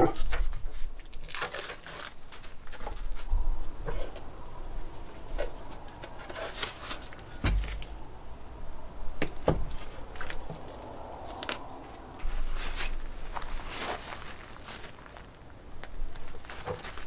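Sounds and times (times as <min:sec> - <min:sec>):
louder knocks: 0:07.4 - 0:08.0.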